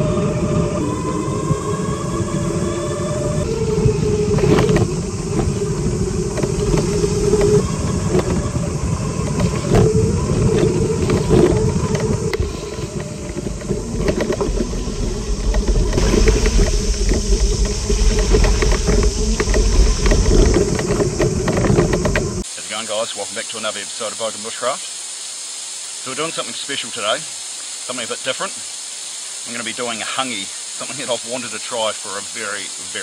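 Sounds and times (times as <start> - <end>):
electric motorbike motor whine: 0.0 - 22.5
knocks and rattles: 9.2 - 22.4.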